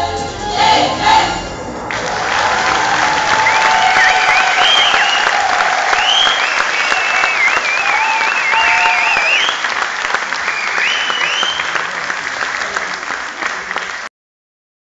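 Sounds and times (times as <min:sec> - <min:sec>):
audience applauding: 0:01.9 - 0:14.1.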